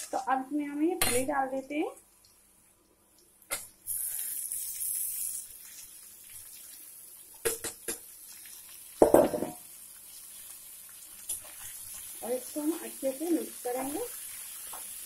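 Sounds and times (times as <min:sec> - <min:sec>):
beans sizzling in hot oil: 0:03.2 - 0:15.0
metal bowl clanging on pan: 0:09.0 - 0:09.6.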